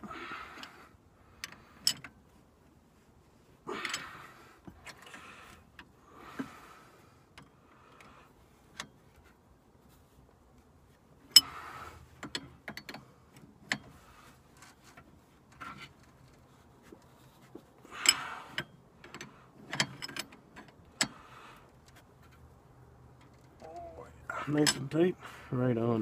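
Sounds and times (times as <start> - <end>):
wrench clicking and clanking on metal: 17.9 - 22.4, 24.4 - 25.0.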